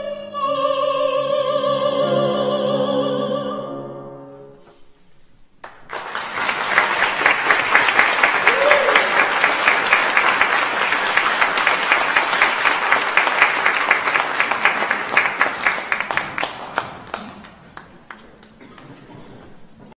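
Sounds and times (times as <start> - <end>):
audience applauding: 5.6 - 19.0.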